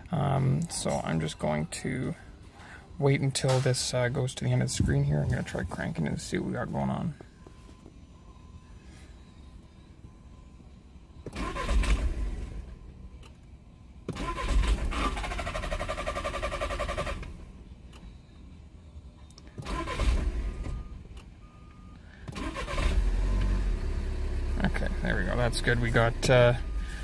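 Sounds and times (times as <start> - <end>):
diesel engine cranking and starting: 11.1 - 13.4, 14.0 - 18.0, 19.4 - 27.0.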